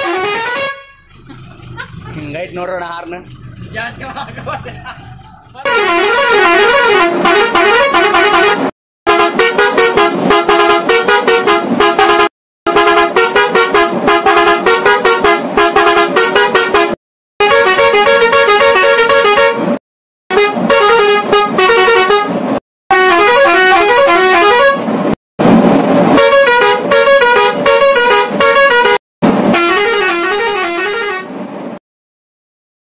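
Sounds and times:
musical air horn playing tunes: 0.0s - 1.1s, 5.7s - 24.9s, 26.1s - 31.4s.

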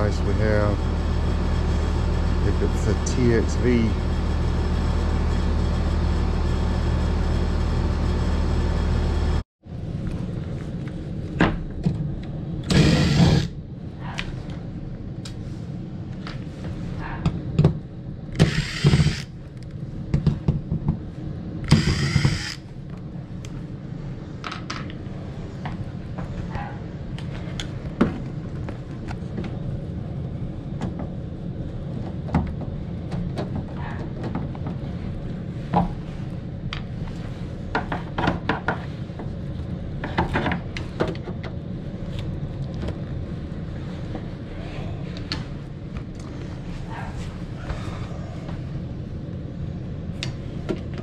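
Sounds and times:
loud whirring bursts: 0.0s - 9.4s, 12.6s - 13.7s, 18.3s - 19.4s, 21.6s - 22.7s
air handler humming: 0.0s - 51.0s.

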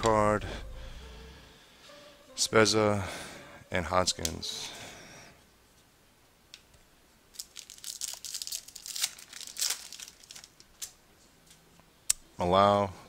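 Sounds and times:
foil wrapper crinkling: 7.3s - 11.0s.

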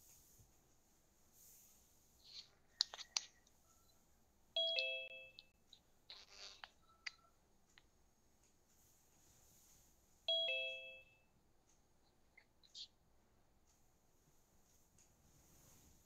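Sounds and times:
two-note ding-dong chime: 10.3s - 11.1s.

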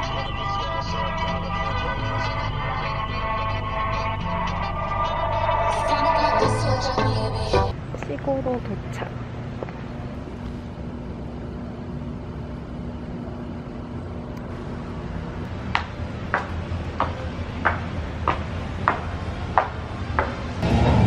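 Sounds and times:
street traffic hum: 0.0s - 21.0s
dress shoes clacking on stairs: 15.7s - 20.6s.

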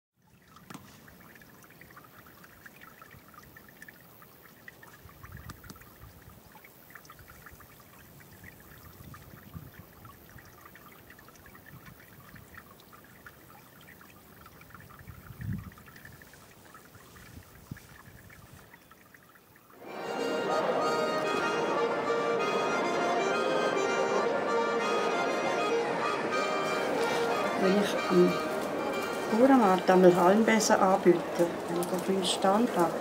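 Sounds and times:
wind rumbling on microphone: 5.0s - 6.5s, 7.2s - 10.5s, 14.6s - 18.8s.

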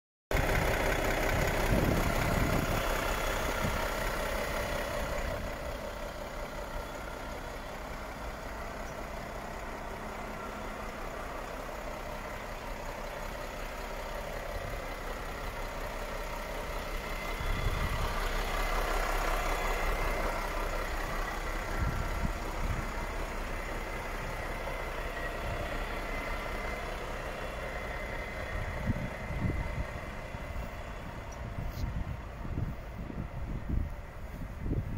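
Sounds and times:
truck diesel engine idling: 0.3s - 34.9s.

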